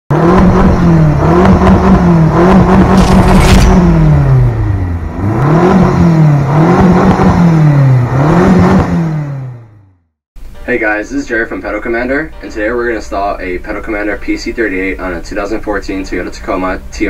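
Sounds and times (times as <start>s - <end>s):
engine revving: 0.1s - 10.1s.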